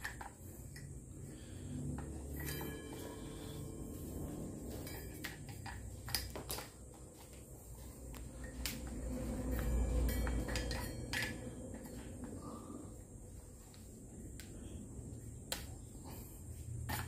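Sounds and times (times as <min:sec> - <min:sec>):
metallic clicks and knocks: 0:08.4 - 0:12.3.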